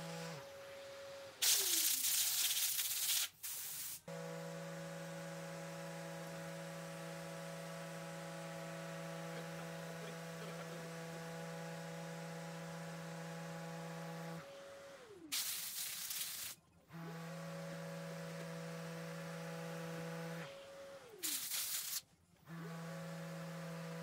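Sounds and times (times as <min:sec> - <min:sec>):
orbital sander running: 0:04.1 - 0:15.0.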